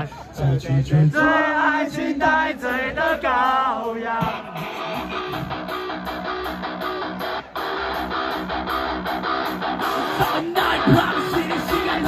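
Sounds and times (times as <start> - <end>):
heavy metal band playing: 2.6 - 12.0
electric guitar chords: 3.1 - 12.0.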